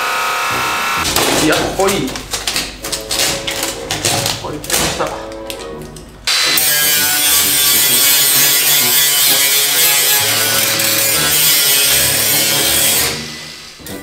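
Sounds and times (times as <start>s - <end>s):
angle grinder cutting sheet metal: 0.0s - 1.4s, 6.3s - 14.0s
background music: 0.5s - 14.0s.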